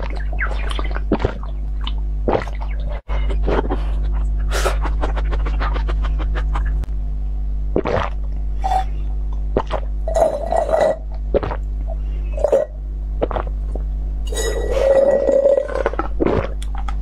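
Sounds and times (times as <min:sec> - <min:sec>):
steady low hum: 0:00.0 - 0:17.0
slurping through a straw: 0:14.3 - 0:16.6.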